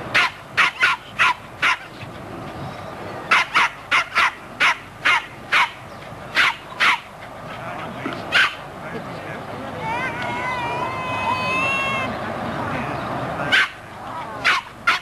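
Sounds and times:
dog barking: 0.2s - 1.9s, 3.3s - 5.8s, 6.4s - 7.1s, 8.3s - 8.6s, 13.5s - 13.8s, 14.4s - 15.0s.

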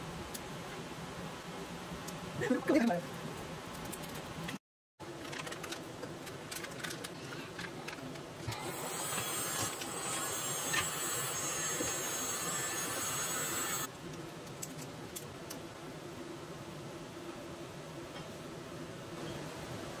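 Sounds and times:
heat gun blowing hiss: 8.5s - 13.9s.

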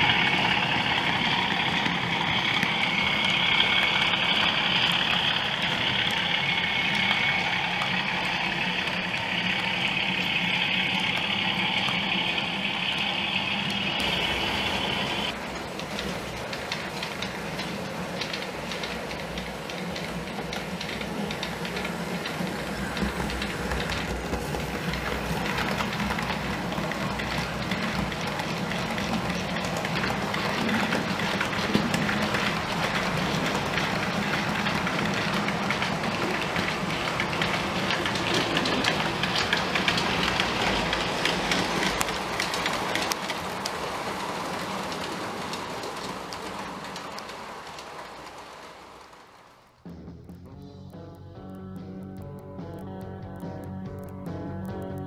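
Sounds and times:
high whine: 0.0s - 15.4s, 50.0s - 55.0s
model locomotive engine hum: 0.0s - 49.8s.

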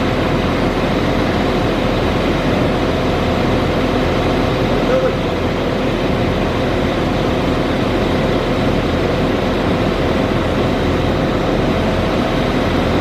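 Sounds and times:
diesel train engines running: 0.0s - 13.0s.

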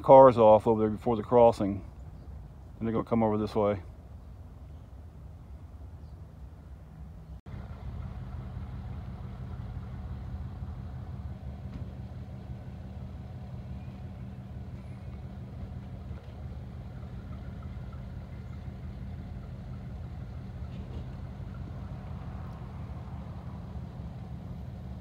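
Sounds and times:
engine idling: 7.5s - 25.0s.

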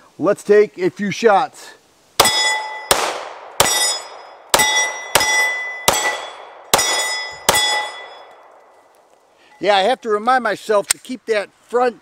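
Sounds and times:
steel plate target ringing: 2.2s - 8.5s
pistol shots: 2.2s - 8.6s.

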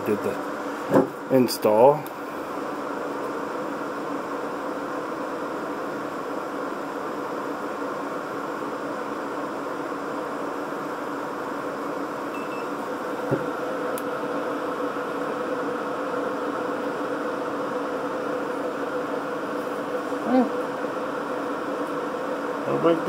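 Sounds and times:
cooling fans humming: 0.0s - 23.0s
knock: 13.3s - 13.5s.

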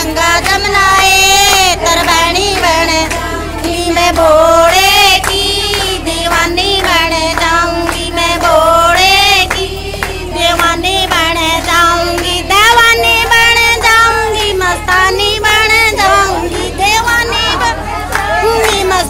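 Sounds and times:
woman singing devotional song: 0.0s - 19.0s.

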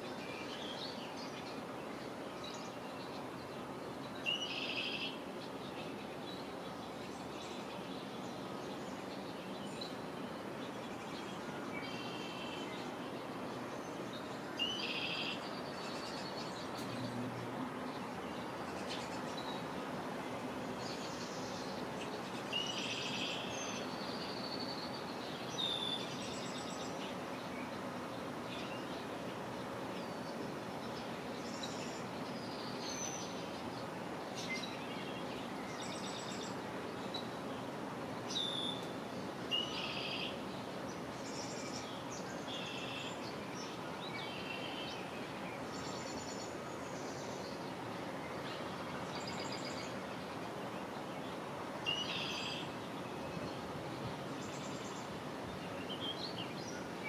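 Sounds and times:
steady background hiss: 0.0s - 57.0s
songbirds chirping and singing: 0.1s - 57.0s.

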